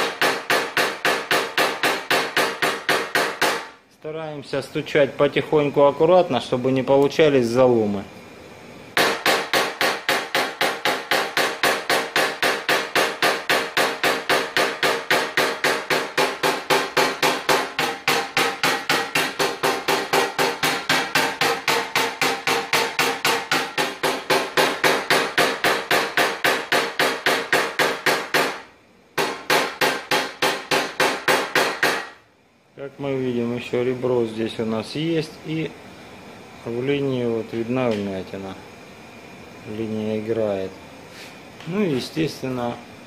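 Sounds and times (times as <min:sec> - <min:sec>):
hammer tapping on metal punch: 0:00.0 - 0:03.7, 0:09.0 - 0:28.6, 0:29.2 - 0:32.2.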